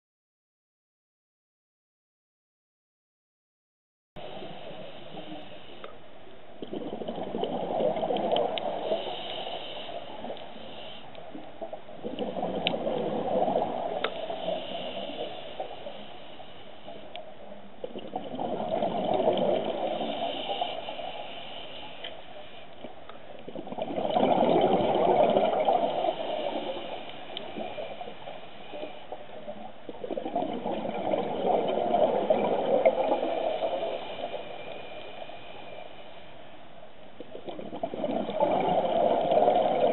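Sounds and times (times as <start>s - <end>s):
diver exhaling bubbles underwater: 6.6s - 9.1s, 11.6s - 15.2s, 17.8s - 20.6s, 23.5s - 26.8s, 29.9s - 34.3s, 37.3s - 39.9s.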